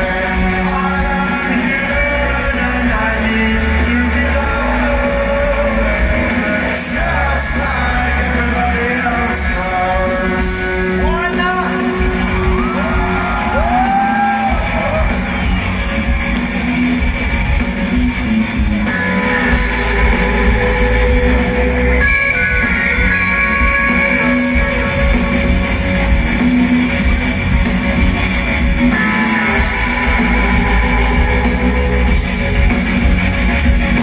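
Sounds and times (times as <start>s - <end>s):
man singing: 0.0s - 14.4s
deep bass: 0.0s - 34.0s
live rock band playing: 0.0s - 34.0s
swooping guitar glides: 0.0s - 34.0s.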